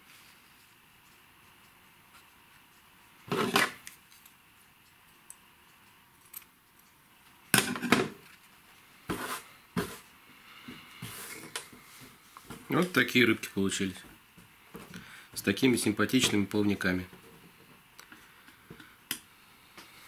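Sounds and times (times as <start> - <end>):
objects clattering on tabletop: 7.6 - 8.2.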